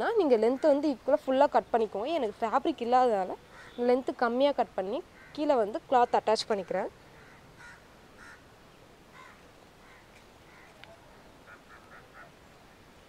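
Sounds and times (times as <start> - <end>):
faint short bird calls: 3.5 - 3.8, 9.1 - 12.4.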